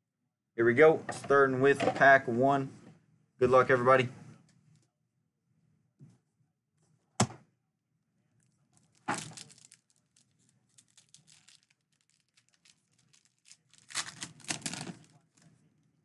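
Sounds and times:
wrapper crinkling: 0:08.4 - 0:15.4
wrapper tearing open: 0:08.8 - 0:15.4.

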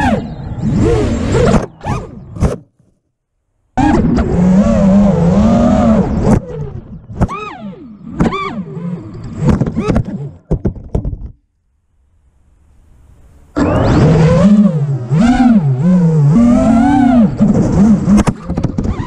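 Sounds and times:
drone motors whining: 0:00.0 - 0:02.6, 0:03.8 - 0:10.7, 0:13.5 - 0:19.0.

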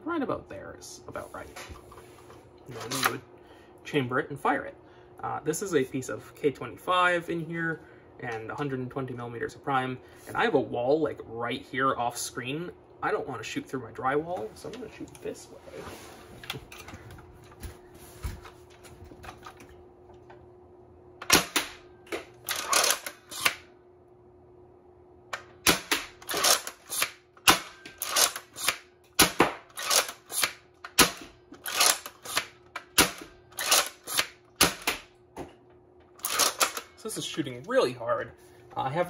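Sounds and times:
foam dart blaster pumping and firing: 0:25.6 - 0:35.0.

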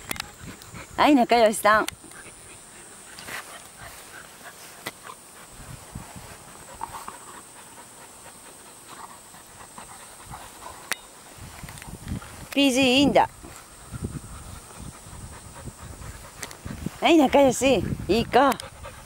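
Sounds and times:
rustles in the grass: 0:00.0 - 0:19.0
dog panting softly: 0:00.2 - 0:01.2, 0:02.1 - 0:11.4, 0:13.7 - 0:19.0.

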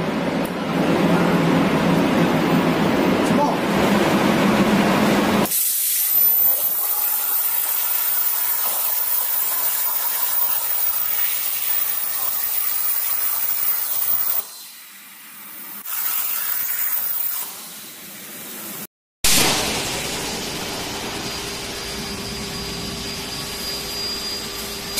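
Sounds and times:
plasma cutter hissing: 0:05.4 - 0:18.7.

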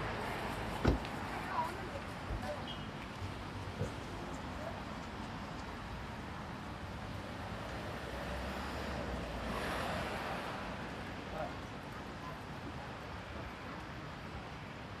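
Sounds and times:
outdoor market street ambience: 0:00.0 - 0:15.0.

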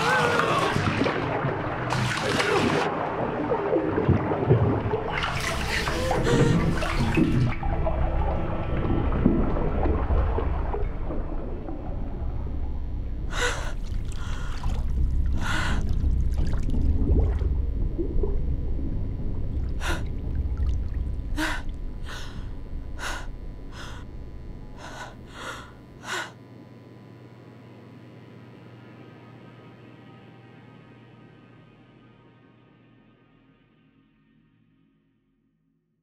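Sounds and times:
low rumble of water: 0:00.0 - 0:26.2
woman gasping for breath: 0:05.9 - 0:06.8, 0:13.3 - 0:14.7, 0:15.4 - 0:15.9, 0:19.8 - 0:20.1, 0:21.4 - 0:24.1, 0:24.8 - 0:26.4.

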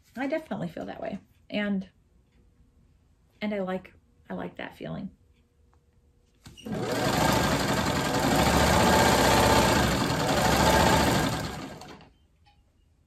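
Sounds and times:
sewing machine running: 0:06.6 - 0:12.1.

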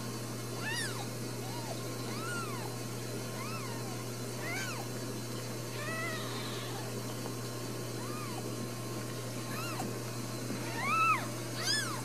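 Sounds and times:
kittens mewing: 0:00.6 - 0:05.0, 0:05.7 - 0:07.0, 0:07.9 - 0:08.6, 0:09.4 - 0:10.0, 0:10.6 - 0:12.0.

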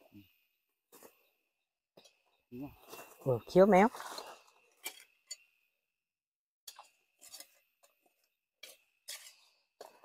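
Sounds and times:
rustles on forest floor: 0:02.8 - 0:04.8.

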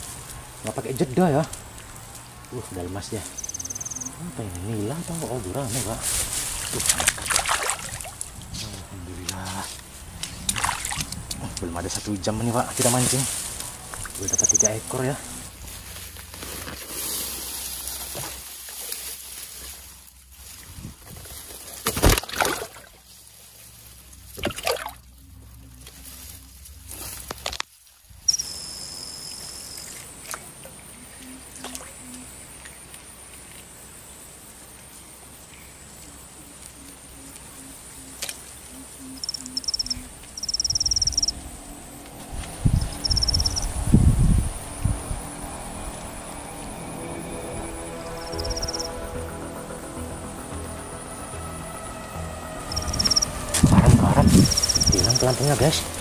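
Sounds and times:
water splashing and trickling: 0:00.0 - 0:28.4, 0:29.3 - 0:34.9, 0:39.2 - 0:56.0
faint high tones: 0:44.6 - 0:55.5.

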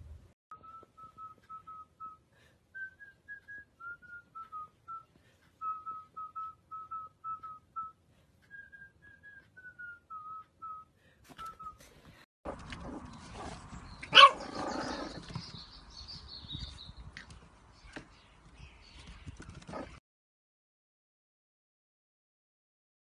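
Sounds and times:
person whistling a tune: 0:00.5 - 0:11.8.

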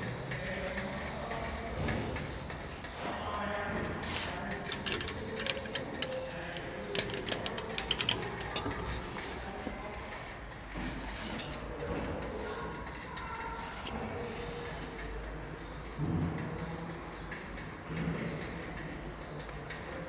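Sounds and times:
ticket machine keys clicking: 0:04.4 - 0:09.5.

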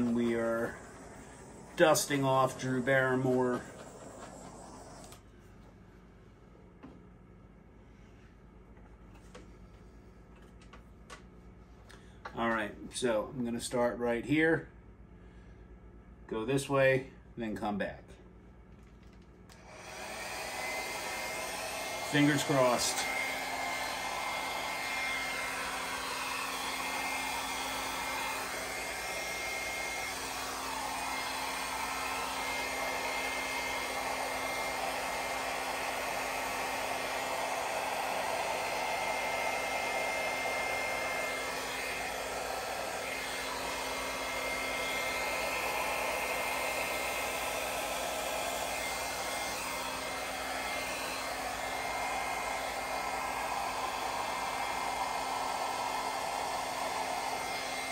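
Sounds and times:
hair dryer blowing: 0:00.0 - 0:05.8, 0:19.5 - 0:57.9.

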